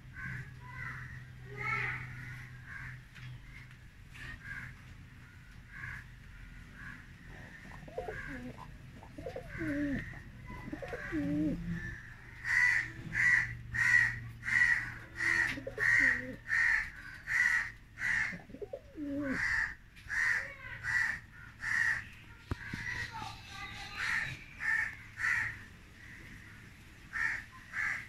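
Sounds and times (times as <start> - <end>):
pigeons cooing: 7.2 - 20.3.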